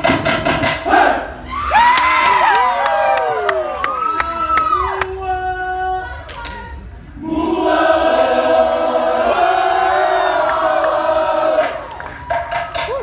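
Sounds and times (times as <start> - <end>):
group singing in chorus: 7.2 - 12.1.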